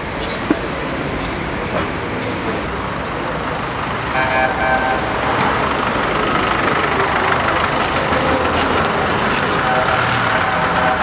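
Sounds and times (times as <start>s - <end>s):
street traffic: 0.0s - 11.0s
vehicle horn tooting: 4.1s - 5.7s, 9.2s - 11.0s.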